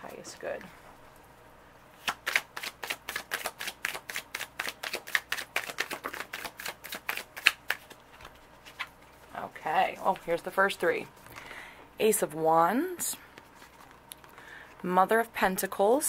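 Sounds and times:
cards being shuffled: 2.0s - 9.3s, 13.3s - 14.4s.

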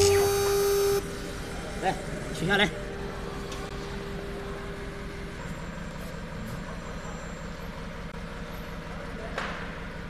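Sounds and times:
router machinery humming: 0.0s - 1.0s.

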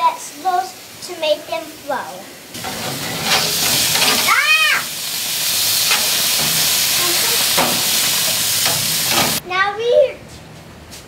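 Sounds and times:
vegetables sizzling on grill: 0.0s - 9.4s
spatula scraping metal: 2.6s - 4.4s, 5.5s - 9.4s.

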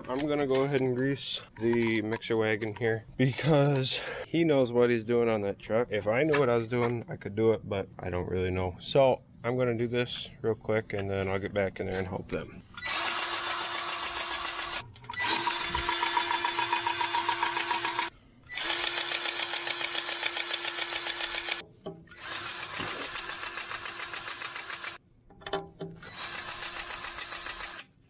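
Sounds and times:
grease gun pump pulsing: 12.9s - 21.6s, 22.2s - 25.0s.

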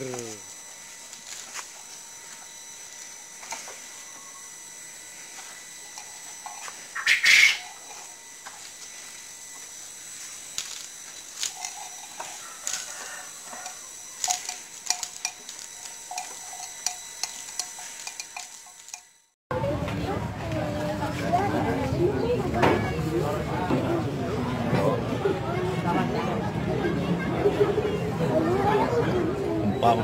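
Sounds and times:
bull crunching fodder: 5.9s - 19.0s.

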